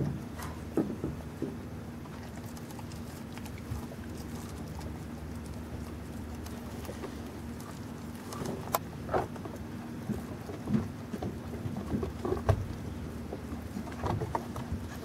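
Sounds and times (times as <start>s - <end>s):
steady low hum: 0.0s - 15.0s
dog licking and chewing meat: 2.0s - 12.7s.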